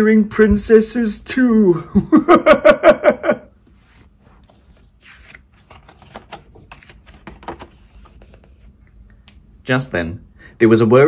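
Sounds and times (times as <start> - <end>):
book page turning: 3.7 - 8.8.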